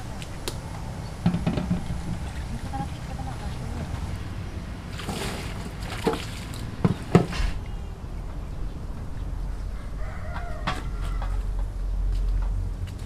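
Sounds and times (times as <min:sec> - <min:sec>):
sharp knocks: 0:01.2 - 0:02.4
rooster crowing: 0:09.6 - 0:11.7.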